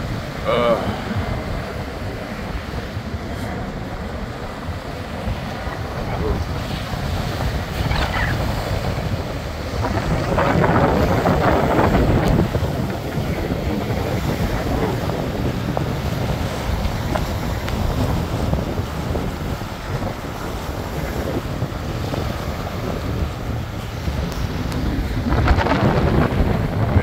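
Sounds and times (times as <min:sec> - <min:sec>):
surf breaking on sand beach: 0:00.0 - 0:27.0
wind buffeting microphone: 0:00.0 - 0:27.0.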